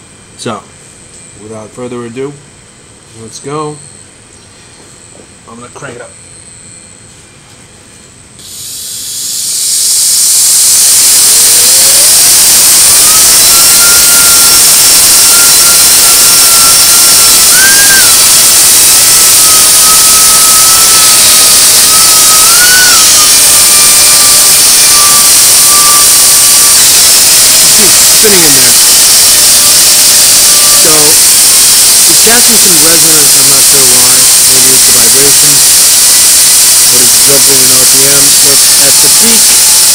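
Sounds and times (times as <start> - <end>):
turbine whine: 0.0 - 39.9
compressed air hissing: 8.4 - 39.9.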